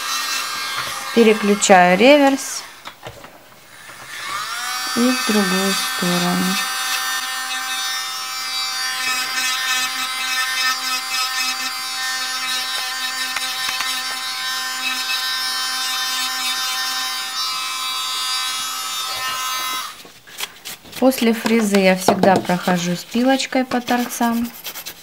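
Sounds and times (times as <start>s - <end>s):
electric nail drill whine: 0.0s - 2.7s, 3.7s - 20.0s.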